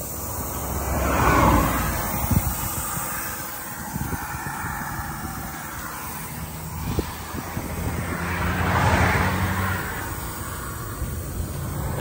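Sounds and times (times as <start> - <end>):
highway traffic rumble: 0.0 - 12.0
vehicle passing by: 0.0 - 12.0.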